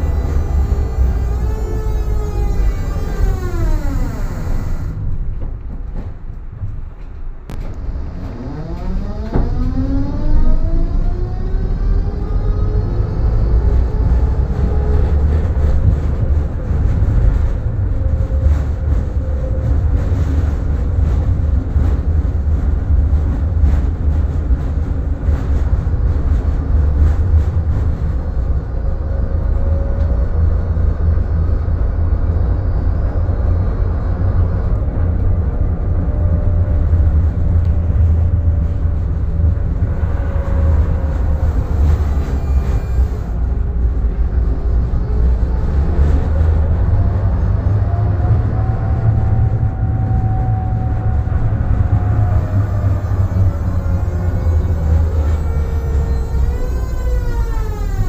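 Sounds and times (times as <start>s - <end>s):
tram motor whine: 0.0s - 58.0s
wheels rumbling on rails: 0.0s - 58.0s.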